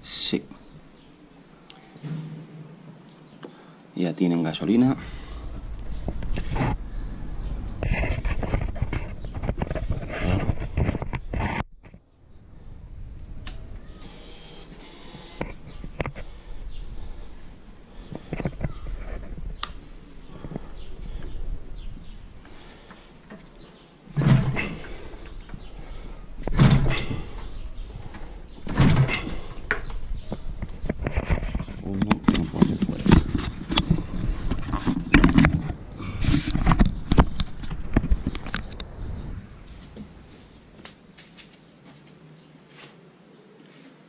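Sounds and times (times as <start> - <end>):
irregular knocking and rattling: 22.5 - 38.9.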